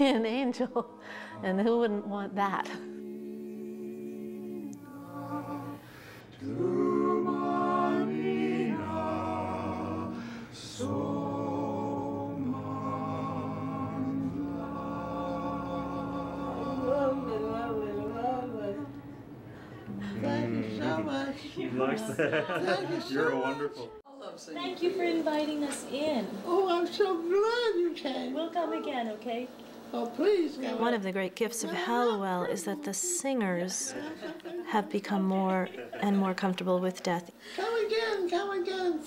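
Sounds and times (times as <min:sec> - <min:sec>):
choir singing a cappella: 0:00.0 - 0:24.1, 0:29.8 - 0:36.2.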